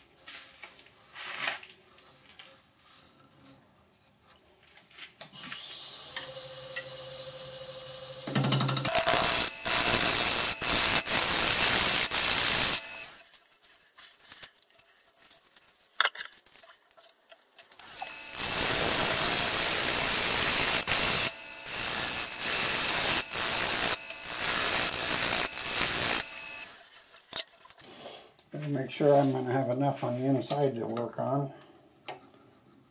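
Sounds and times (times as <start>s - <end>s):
lathe gouge cutting wood: 6.4s - 13.2s, 17.8s - 26.8s.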